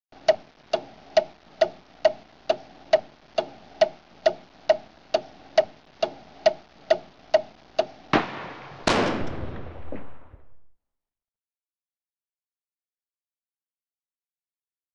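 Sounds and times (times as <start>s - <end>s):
clock ticking: 0.1s - 8.1s
sharp bang: 8.1s - 10.4s.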